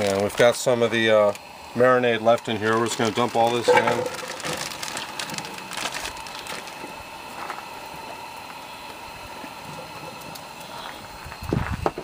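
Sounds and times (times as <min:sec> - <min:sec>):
plastic bag rustling: 0:02.6 - 0:06.9
vegetables dumped into pot: 0:03.6 - 0:05.0.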